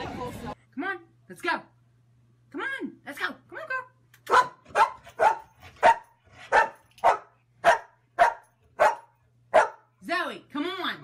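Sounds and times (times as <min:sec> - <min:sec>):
dog barking: 0:04.3 - 0:09.9.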